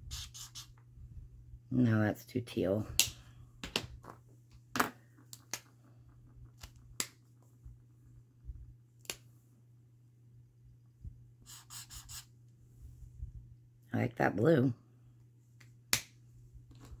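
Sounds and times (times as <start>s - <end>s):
low hum: 5.7s - 11.4s.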